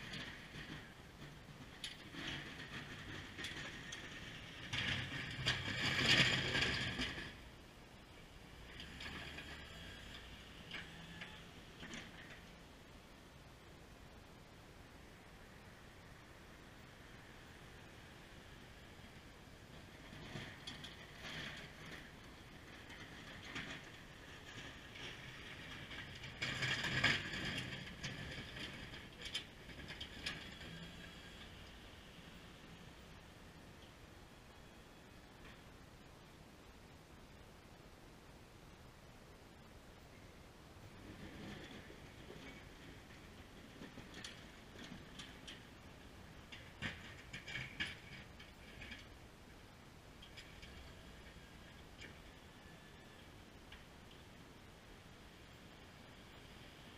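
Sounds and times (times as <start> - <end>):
plow blade scraping pavement: 0.0 - 12.9, 15.1 - 35.8, 40.8 - 56.9
truck engine running low: 0.0 - 12.9.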